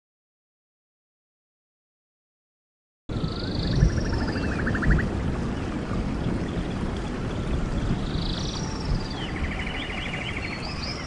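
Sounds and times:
birds calling: 3.2 - 11.0
heavy rain falling: 4.0 - 9.5.

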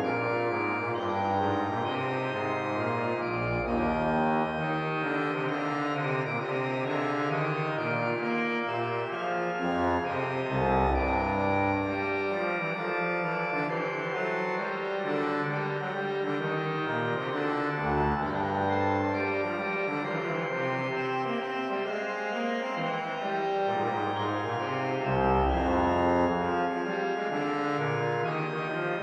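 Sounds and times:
organ playing: 0.0 - 29.0.

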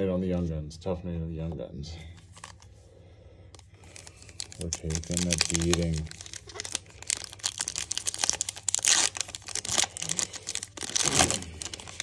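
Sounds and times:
foil wrapper crinkling and tearing: 3.8 - 12.0.

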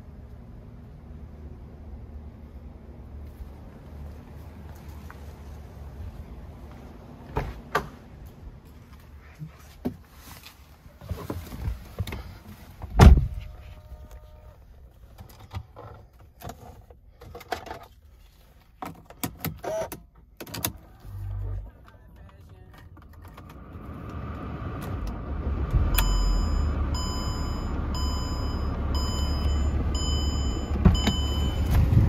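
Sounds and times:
car door shutting: 12.9 - 13.5, 30.5 - 32.0.

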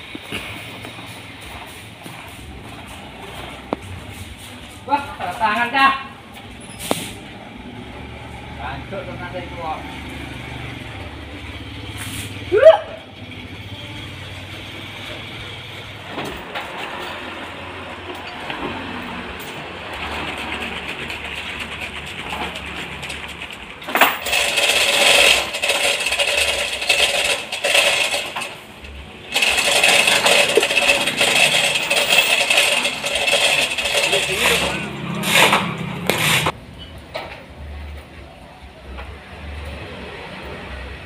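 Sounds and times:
bandsaw running: 11.4 - 36.6
saw blade cutting log: 20.0 - 28.6, 29.3 - 36.6.

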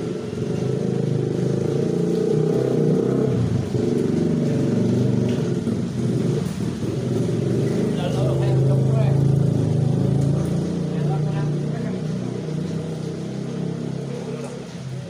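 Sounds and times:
motor vehicle engine running: 0.0 - 15.0.

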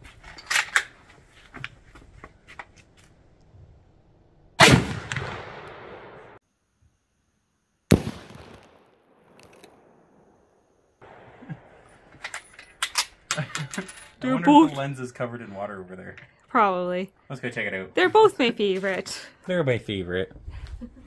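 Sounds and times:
rifle shots with echo: 4.6 - 6.4, 7.9 - 10.2
rifle handling clicks: 9.4 - 9.8.

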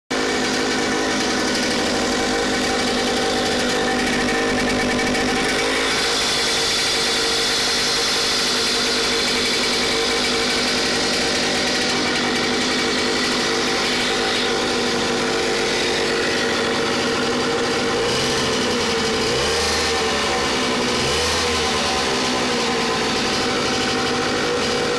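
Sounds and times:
outboard motor running: 0.1 - 24.9.

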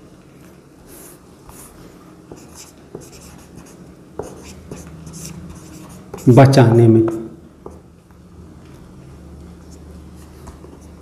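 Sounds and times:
marker scratching on whiteboard: 0.9 - 7.8.

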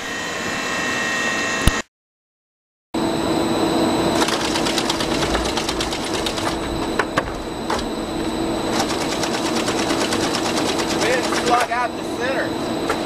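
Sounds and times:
machinery humming and rattling: 3.3 - 13.0.

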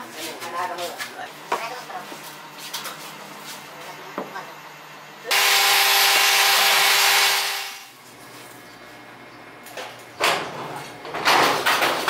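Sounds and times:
electric power tool running: 5.3 - 8.0.

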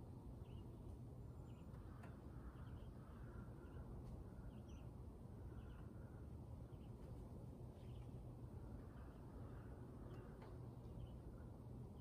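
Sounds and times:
faint bird chirps: 1.4 - 7.0.

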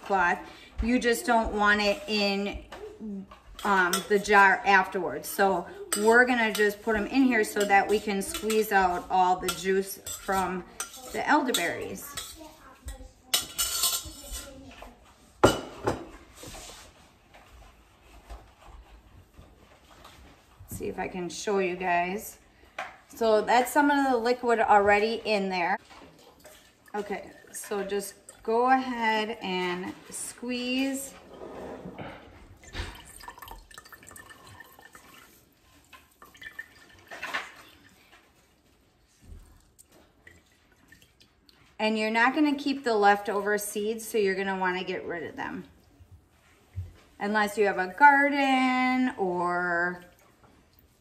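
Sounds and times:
metal spoon scraping a pot: 3.3 - 12.5, 13.3 - 14.6
juice dripping into glass jar: 33.0 - 37.1.

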